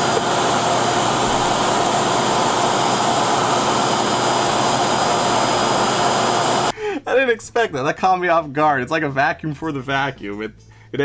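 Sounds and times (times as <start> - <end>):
suction motor running with whine: 0.0 - 6.7.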